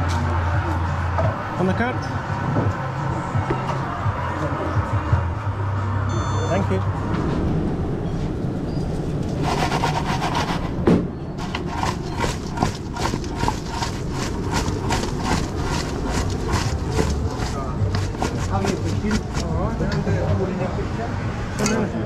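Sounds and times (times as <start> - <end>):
chips rattling in a metal bowl: 11.4 - 19.5.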